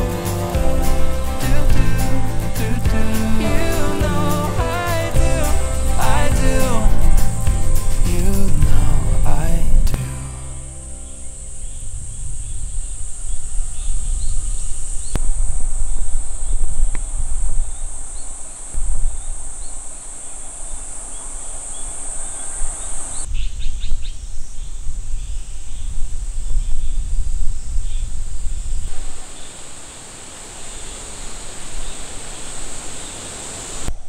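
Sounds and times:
birds chirping: 0.0 - 34.0
insect drone: 10.3 - 34.0
wind rumbling on microphone: 11.3 - 29.8.

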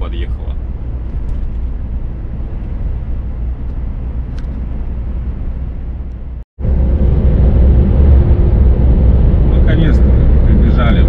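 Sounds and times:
truck engine and road noise: 0.0 - 11.0.

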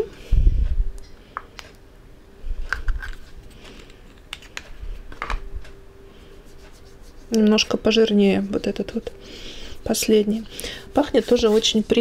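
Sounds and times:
soft rubbing of hands: 6.3 - 7.7, 10.9 - 12.0.

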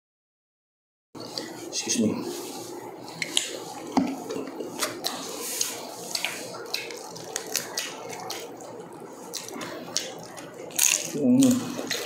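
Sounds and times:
people chewing: 1.2 - 12.0
lip smacks: 3.2 - 8.5
meat being torn: 4.8 - 12.0.

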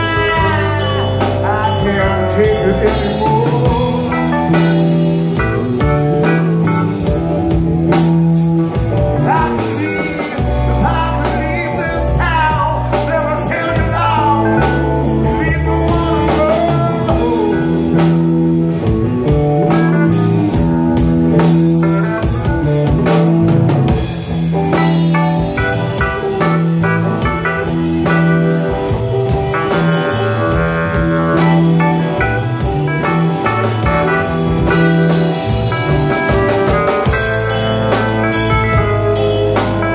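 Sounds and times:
person singing: 0.0 - 5.1, 8.7 - 18.4
blues-rock band playing: 0.0 - 39.9.

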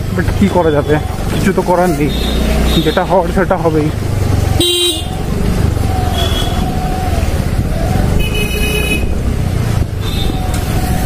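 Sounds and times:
scooter engine and road noise: 0.0 - 11.0
horn beeps: 0.6 - 3.2, 4.6 - 5.2, 8.2 - 9.2
wind on microphone: 4.2 - 11.0.

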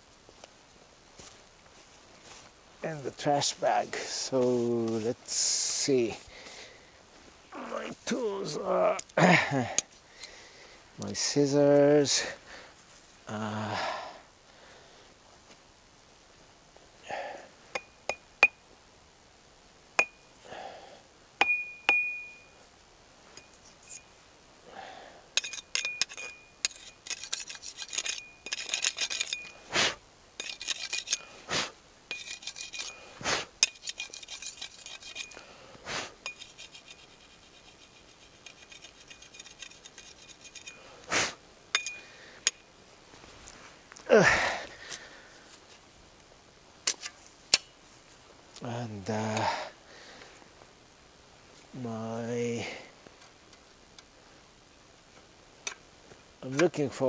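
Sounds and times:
metal hand tools clinking: 25.4 - 29.6, 30.4 - 31.3, 32.1 - 33.0, 33.6 - 35.4, 36.2 - 40.9, 41.7 - 42.7.

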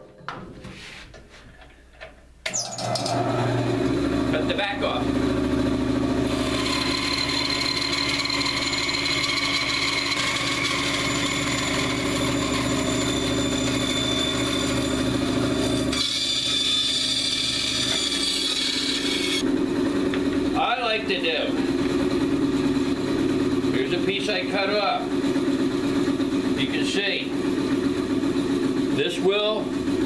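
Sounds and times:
bandsaw cutting log: 6.1 - 25.6.

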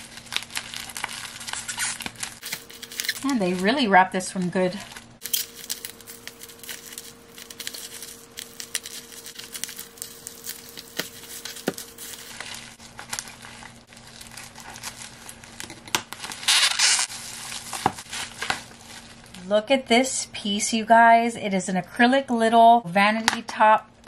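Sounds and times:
plastic wrap crinkling: 0.0 - 19.4
scissors cutting plastic: 0.3 - 3.8.

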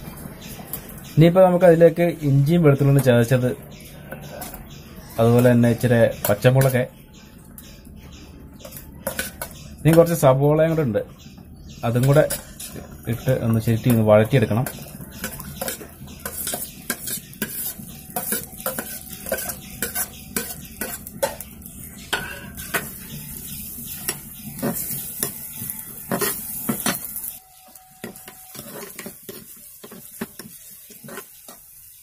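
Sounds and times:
light sizzle of frying: 0.0 - 32.0
metal spoon scraping a pot: 3.8 - 6.9, 8.6 - 10.2, 11.9 - 27.4, 28.0 - 31.8.

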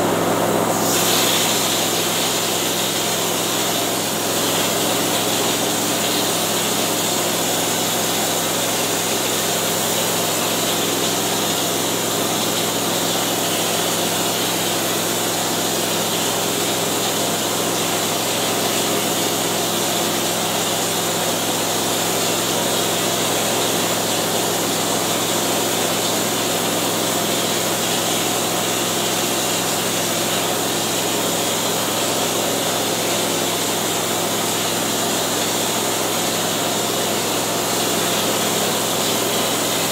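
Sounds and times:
air compressor motor hum: 0.0 - 39.9
texture gun spraying air hiss: 0.8 - 3.7.

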